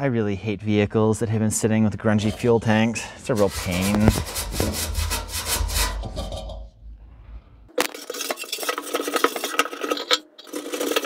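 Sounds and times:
scrubbing inside metal tank: 2.2s - 11.0s
clinking and rattling: 7.7s - 11.0s.

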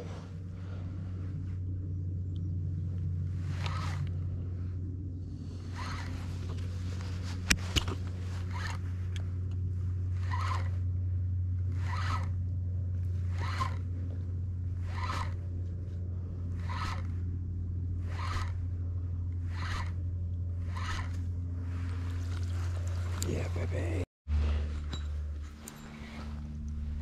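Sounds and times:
low hum: 0.0s - 27.0s
fishing reel whirring: 3.5s - 4.2s, 5.4s - 6.6s, 8.4s - 8.8s, 10.1s - 10.9s, 11.7s - 12.4s, 13.2s - 14.0s, 14.7s - 15.5s, 16.5s - 17.2s, 18.0s - 18.8s, 19.4s - 23.3s.

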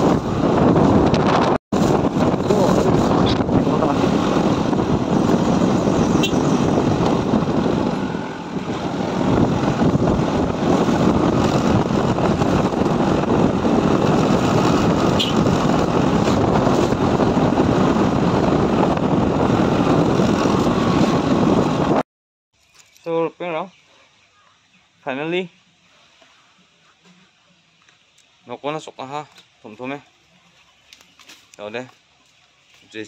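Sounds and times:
wind rushing on microphone: 0.0s - 22.0s
motorcycle engine: 1.8s - 22.0s.

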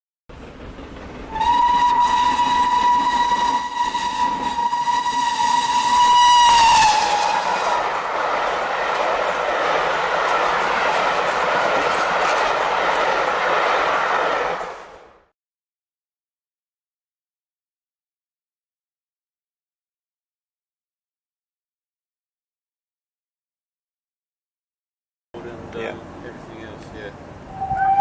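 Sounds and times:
steam locomotive whistle: 1.3s - 7.8s, 27.5s - 28.0s.

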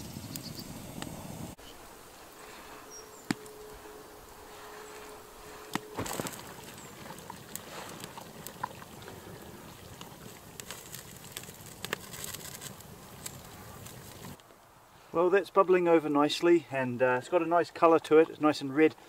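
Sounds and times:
campfire crackling and popping: 0.0s - 1.6s, 2.4s - 3.9s, 5.4s - 14.5s
stew boiling in pot: 0.0s - 14.4s
faint steady whistle: 2.4s - 6.5s.

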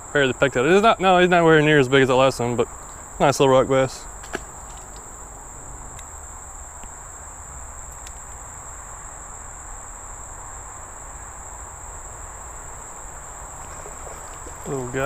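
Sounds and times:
insects singing: 0.0s - 15.0s
faint ticks: 7.9s - 8.4s, 12.4s - 14.7s.

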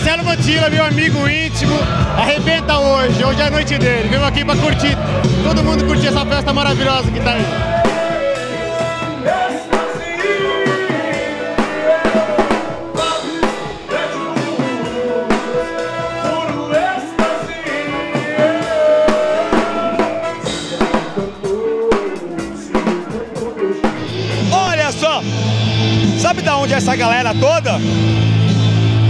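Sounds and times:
drum kit beat with rimshots: 0.0s - 29.0s
live rock band playing: 0.0s - 29.0s
person singing: 4.1s - 24.6s.

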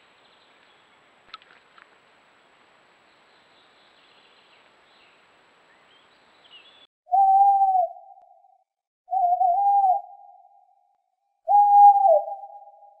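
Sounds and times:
hooting whistle-like tone: 7.1s - 8.2s, 9.1s - 10.6s, 11.5s - 13.0s.

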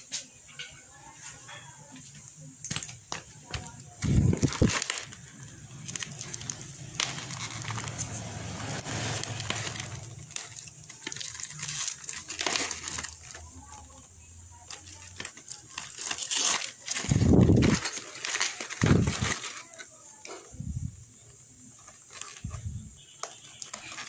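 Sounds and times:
cardboard and tape tearing: 2.7s - 13.6s, 14.7s - 20.4s, 23.2s - 24.0s.

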